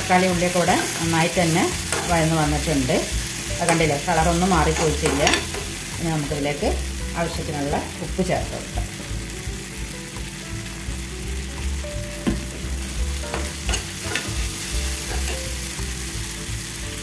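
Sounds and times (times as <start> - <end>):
vegetables sizzling in a frying pan: 0.0 - 17.0
spoon scraping a pan: 1.8 - 2.2, 4.6 - 5.8, 13.3 - 15.4.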